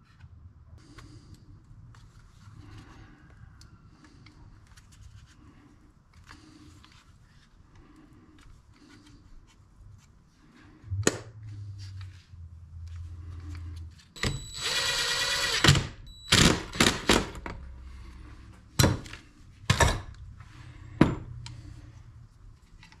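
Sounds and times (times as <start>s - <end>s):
low hum: 10.6s - 14.8s
cordless drill running: 14.2s - 17.3s.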